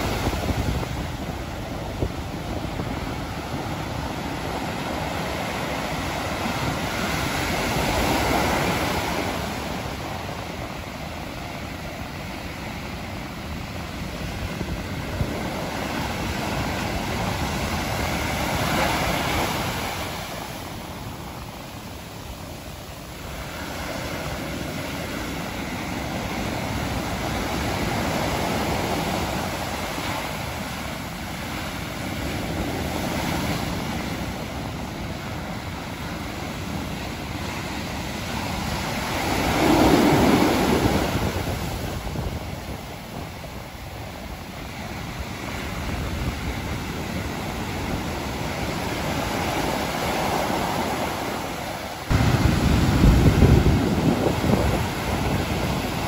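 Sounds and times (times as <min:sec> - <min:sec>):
surf breaking on beach: 0:00.0 - 0:56.0.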